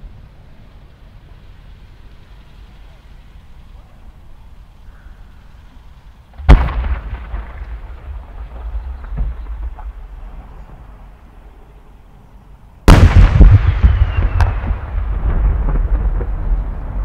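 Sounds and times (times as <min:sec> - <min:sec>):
outdoor background hum: 0:00.0 - 0:17.0
rolling rumble: 0:05.6 - 0:17.0
firework launch boom: 0:06.4 - 0:10.4, 0:12.9 - 0:17.0.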